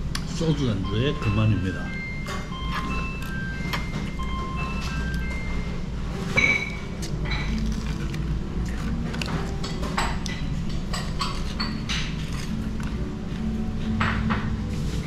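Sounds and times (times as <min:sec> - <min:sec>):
low room hum: 0:00.0 - 0:15.0
dish or glass clinking: 0:06.3 - 0:07.6.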